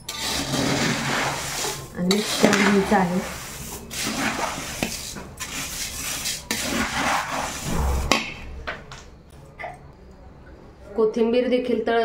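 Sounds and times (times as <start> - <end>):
spatula scraping dry snack: 0.0 - 7.7.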